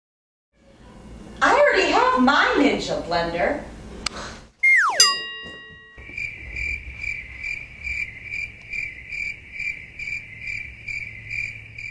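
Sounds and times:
crickets chirping: 6.0 - 11.9.

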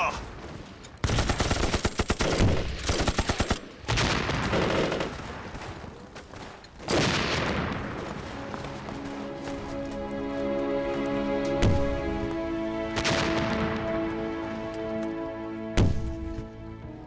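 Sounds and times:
soundtrack music: 7.6 - 17.0.

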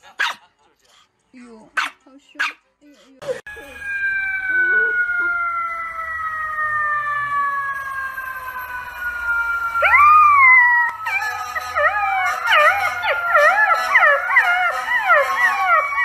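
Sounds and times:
dog howling: 9.8 - 16.0.

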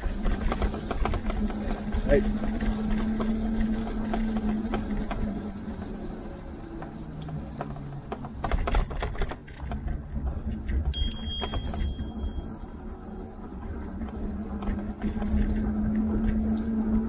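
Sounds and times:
bike rattling over bumps: 0.0 - 17.0
tyres rumbling on wet path: 0.0 - 17.0
thin high ringing tone: 10.9 - 12.6.

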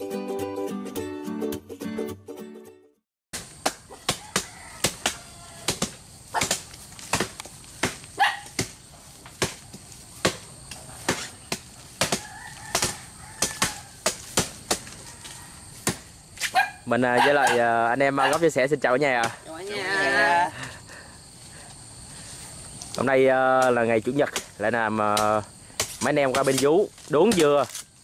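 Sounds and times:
blade chopping into palm crown: 3.4 - 15.0, 15.8 - 16.5, 24.3 - 27.9.

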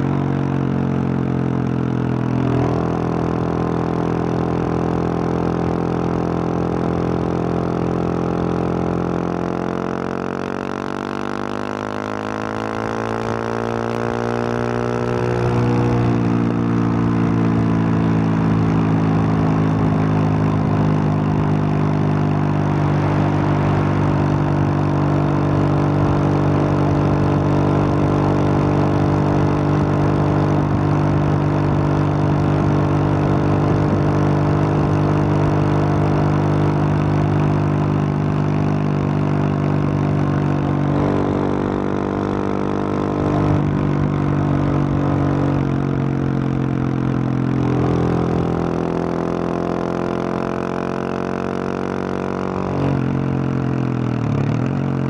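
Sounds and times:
motorcycle engine cruising: 0.0 - 55.0
road noise: 0.0 - 55.0
wind rush: 21.0 - 26.5.

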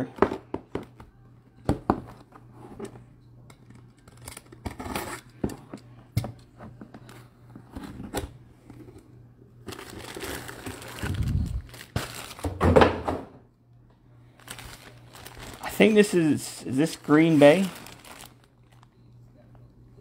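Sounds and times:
plastic wrapper rustling: 9.6 - 12.6, 14.3 - 19.0.

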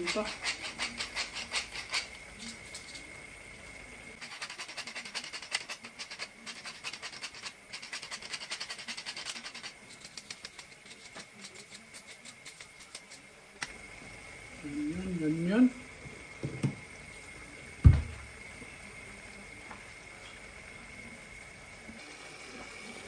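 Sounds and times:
pepper mill grinding: 0.0 - 3.2, 4.2 - 13.7
hot pan sizzling: 0.0 - 23.0.

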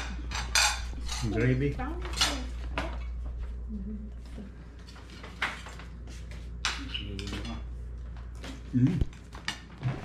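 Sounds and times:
cutlery clinking on plates: 0.0 - 1.5
low steady hum: 0.0 - 10.0.

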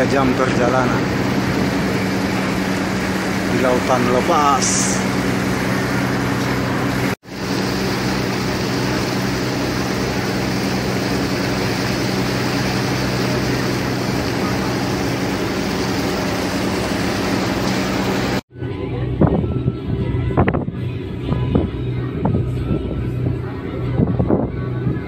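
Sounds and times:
wind and water rushing: 0.0 - 18.4
ship engine hum: 0.0 - 25.0.

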